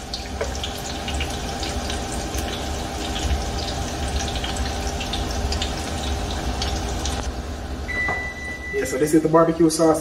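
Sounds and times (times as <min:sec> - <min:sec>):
food deep-frying in oil: 0:00.0 - 0:08.9.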